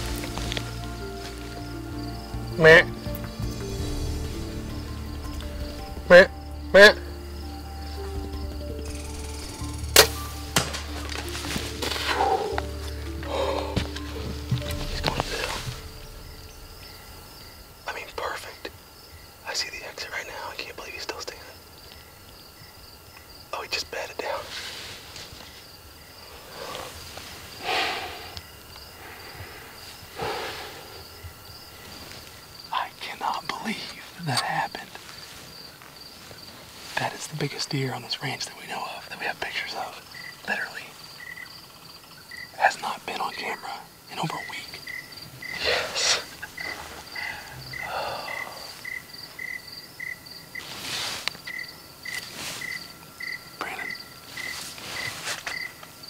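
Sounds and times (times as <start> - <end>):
crickets chirping: 0.0 - 56.0
insects trilling: 0.0 - 56.0
soft breathy swishes: 50.6 - 51.3.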